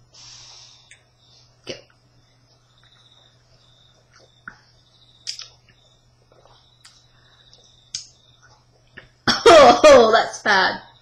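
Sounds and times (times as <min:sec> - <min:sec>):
people sipping and swallowing: 0:05.3 - 0:07.7.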